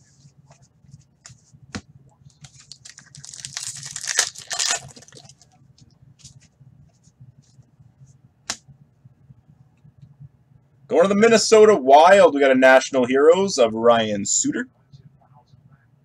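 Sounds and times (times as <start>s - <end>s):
foil pack tearing: 2.6s - 5.3s.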